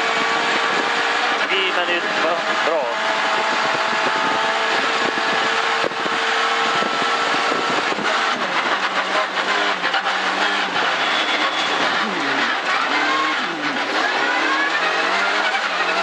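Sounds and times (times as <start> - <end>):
car engine revving: 0.0 - 16.0
gravel rattling against underside: 5.0 - 16.0.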